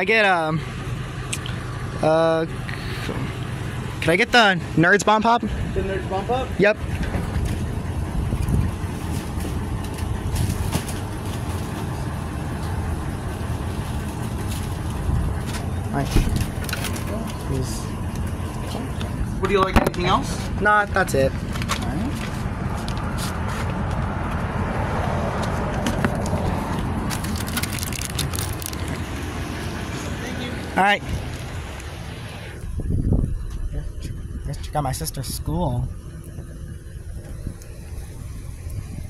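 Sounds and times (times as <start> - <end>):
truck engine idling: 0.0 - 39.0
sharp clicks and rustles: 6.8 - 20.1, 21.3 - 24.5, 25.4 - 29.6.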